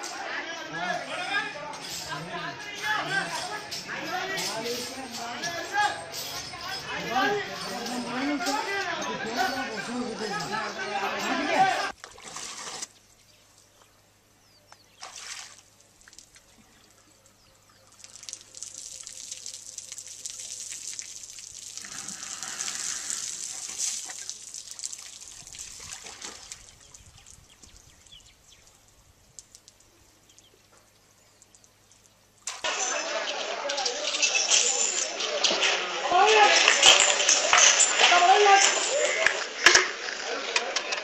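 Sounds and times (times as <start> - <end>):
water trickling and pouring: 15.0 - 39.2.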